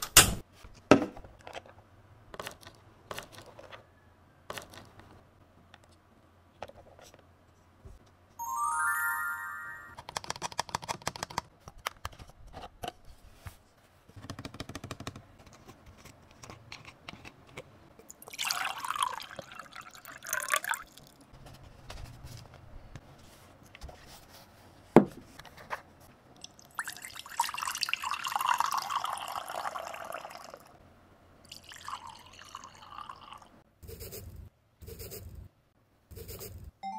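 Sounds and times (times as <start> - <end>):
rising chime: 8.4 - 10.0
water pouring into plastic containers: 18.2 - 21.2, 26.4 - 30.7.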